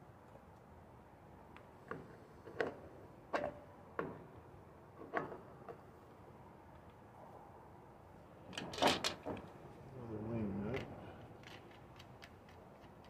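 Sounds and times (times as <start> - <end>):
engine parts clicking and clinking: 8.5 - 9.5.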